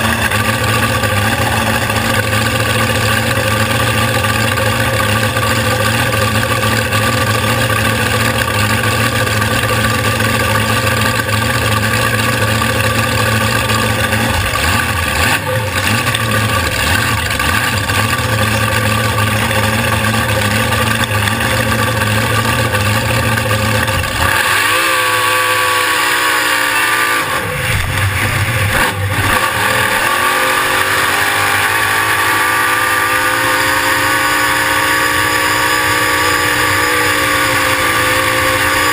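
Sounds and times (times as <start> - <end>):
boat engine running: 0.0 - 38.9.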